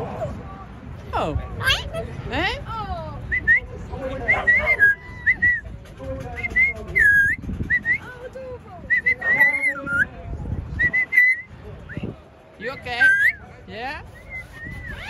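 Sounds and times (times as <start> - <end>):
parrot whistling: 4.3 - 5.6, 6.4 - 8.0, 8.9 - 10.1, 10.8 - 11.5, 12.8 - 13.4, 14.2 - 15.0.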